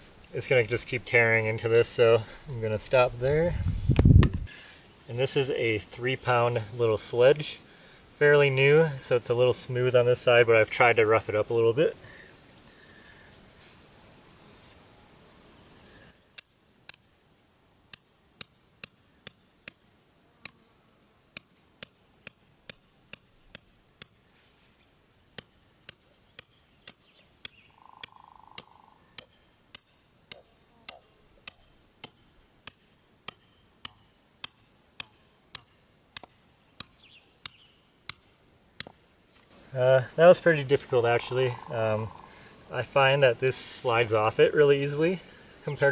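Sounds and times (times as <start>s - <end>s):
sledgehammer striking steel stake: 17.9s - 20.6s, 21.4s - 24.3s, 25.4s - 39.0s.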